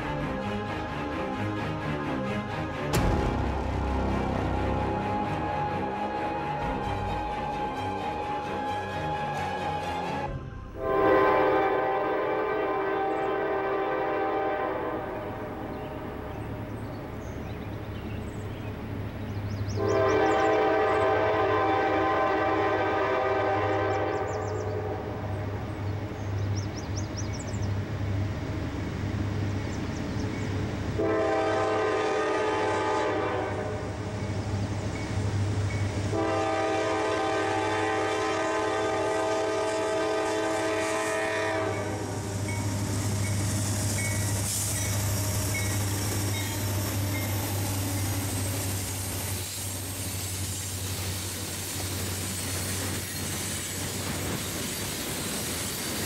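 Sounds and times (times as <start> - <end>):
locomotive air horn blasts: 3.3 - 15.5, 19.8 - 25.3, 31.0 - 34.0, 36.1 - 42.8
wheels hissing on rails: 33.9 - 56.0.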